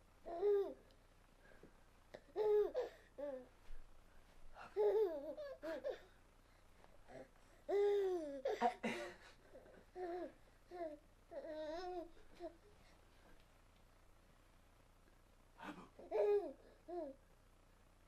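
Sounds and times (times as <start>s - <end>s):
baby laughing and babbling: 4.7s - 6.1s, 16.0s - 17.2s.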